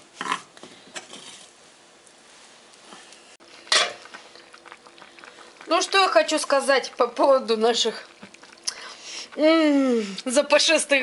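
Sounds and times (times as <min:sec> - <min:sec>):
wooden spatula scraping frying pan: 0:00.2 - 0:01.6.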